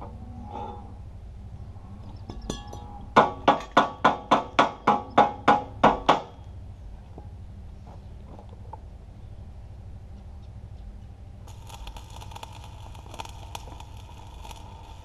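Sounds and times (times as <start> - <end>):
hammer striking metal: 2.3 - 6.4.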